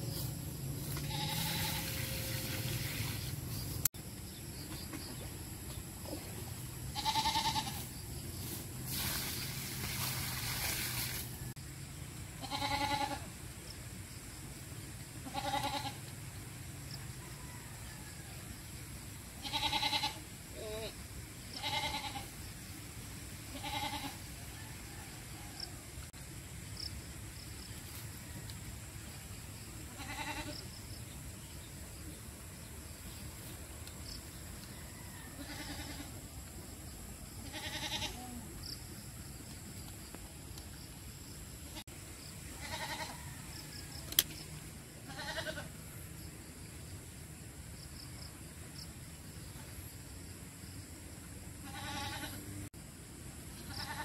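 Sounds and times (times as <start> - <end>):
goats bleating: 1.1 - 2.0, 7.0 - 7.8, 12.4 - 13.2, 15.3 - 16.0, 23.5 - 24.2, 30.0 - 30.5, 35.4 - 36.1, 37.4 - 38.2, 42.6 - 43.2, 45.1 - 45.7, 51.6 - 52.4.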